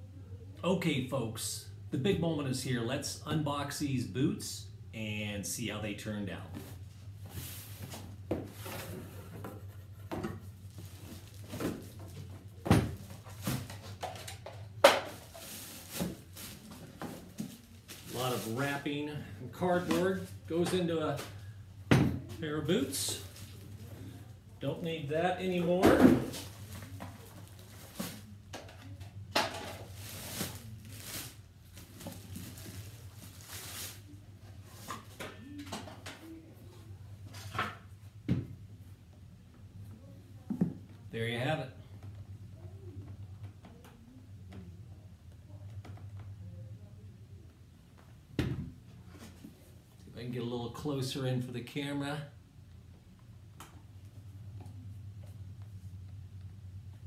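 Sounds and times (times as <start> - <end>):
steady low hum: 0.0 - 57.0
plastic wrapping crinkling: 15.1 - 18.8, 29.8 - 34.9
plastic bag crinkling: 29.8 - 34.1.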